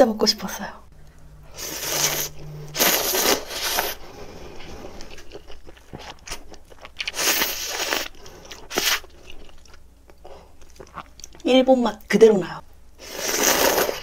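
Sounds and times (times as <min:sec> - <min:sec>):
noodles being slurped: 0:01.5 - 0:06.0, 0:07.0 - 0:09.3, 0:13.0 - 0:14.0.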